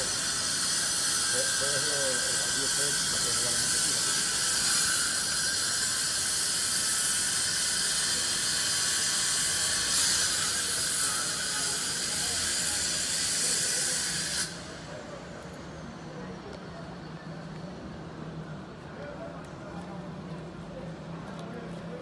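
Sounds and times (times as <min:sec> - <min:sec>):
steady high hiss: 0:00.0 - 0:14.9.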